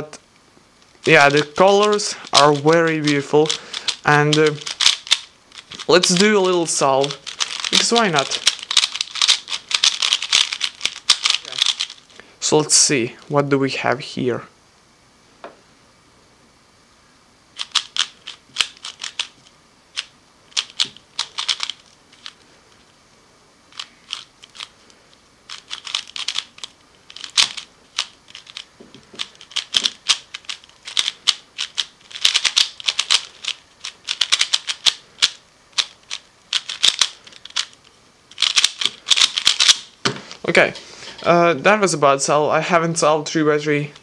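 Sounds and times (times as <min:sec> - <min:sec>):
puzzle cube clicking: 0:01.0 - 0:12.0, 0:17.6 - 0:22.4, 0:23.7 - 0:24.7, 0:25.5 - 0:39.9.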